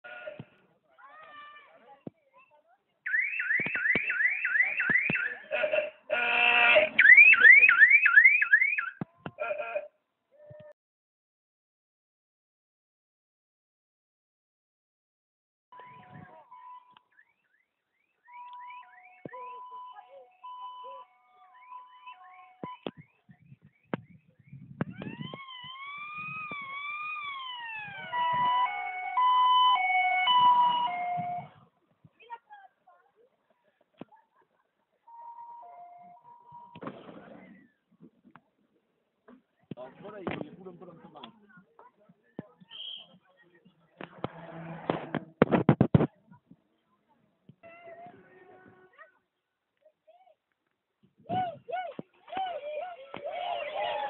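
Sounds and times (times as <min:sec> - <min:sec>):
buzzy horn-like tone: 0:05.5 - 0:07.0, 0:44.2 - 0:45.3, 0:47.6 - 0:49.0
electronic siren whooping: 0:24.9 - 0:31.5.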